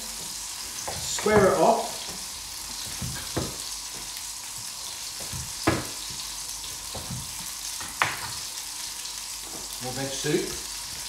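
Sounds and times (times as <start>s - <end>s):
steady hiss: 0.0s - 11.0s
knife chopping on wooden board: 3.0s - 3.6s, 5.2s - 6.2s, 6.9s - 8.4s.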